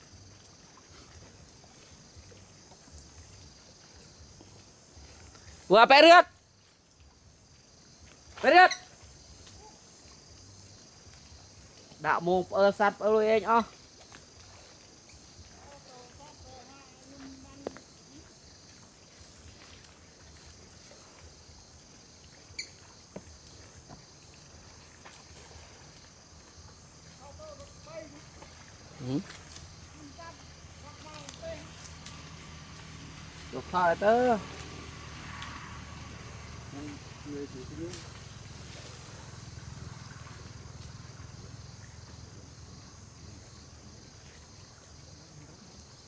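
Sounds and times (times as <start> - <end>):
water sloshing: 0.0 - 45.2
high insect drone: 0.0 - 46.0.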